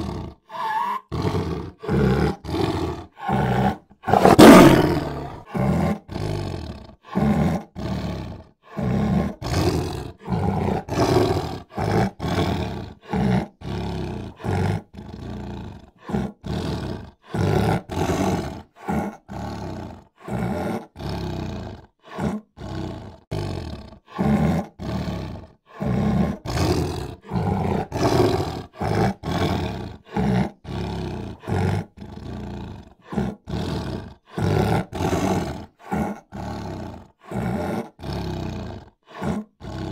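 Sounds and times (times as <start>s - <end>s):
big cats roaring: 0.0s - 39.9s.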